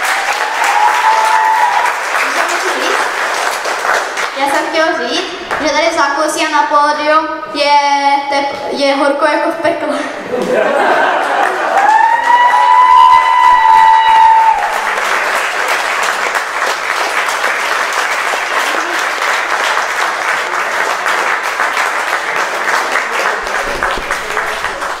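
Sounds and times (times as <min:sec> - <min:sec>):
high-pitched cheer: 0:00.0 - 0:03.0, 0:11.4 - 0:15.7
audience applauding: 0:00.0 - 0:04.7, 0:10.7 - 0:25.0.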